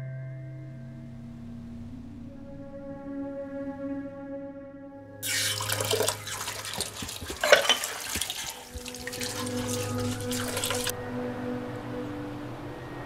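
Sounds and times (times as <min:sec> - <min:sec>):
low steady hum: 0:00.0 - 0:04.0, 0:05.2 - 0:13.0
water running and splashing: 0:05.2 - 0:10.9.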